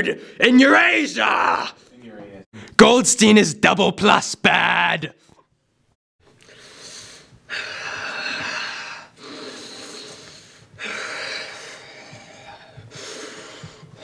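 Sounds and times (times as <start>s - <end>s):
man breathing heavily: 6.4s - 14.0s.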